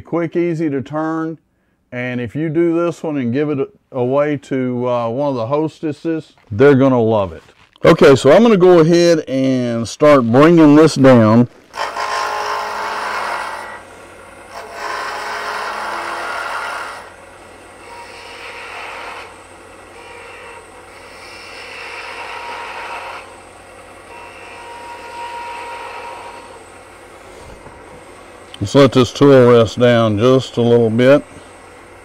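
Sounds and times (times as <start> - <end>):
turning tool cutting wood: 11.6 - 27.0
lathe humming: 11.7 - 32.0.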